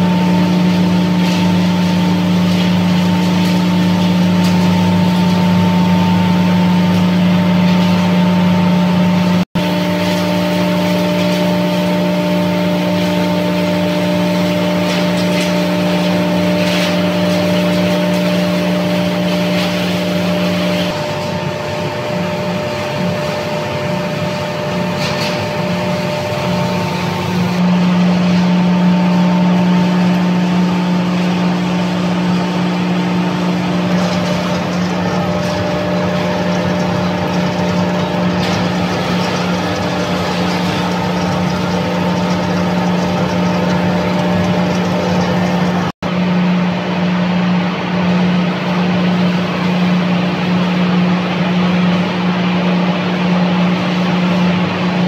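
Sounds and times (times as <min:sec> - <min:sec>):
electric machine hum: 0:00.0 - 0:55.0.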